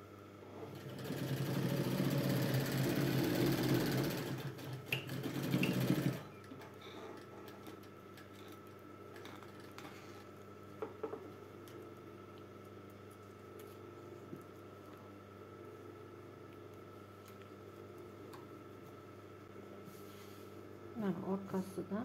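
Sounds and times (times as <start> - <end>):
sewing machine stitching: 0.6 - 6.3.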